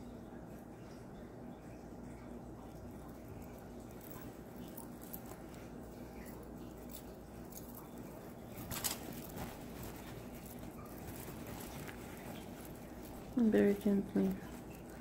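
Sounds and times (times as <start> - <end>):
low room hum: 0.0 - 15.0
cloth rustling: 2.8 - 15.0
metal bracelet links clicking: 6.2 - 11.4.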